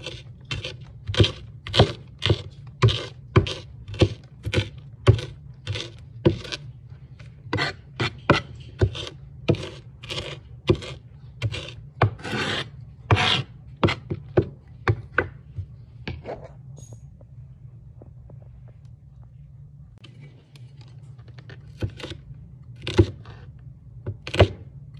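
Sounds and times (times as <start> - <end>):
knife chopping vegetables on board: 0.0 - 6.6, 7.5 - 15.4, 22.8 - 23.4, 24.1 - 24.6
knife scraping cutting board: 0.0 - 14.3.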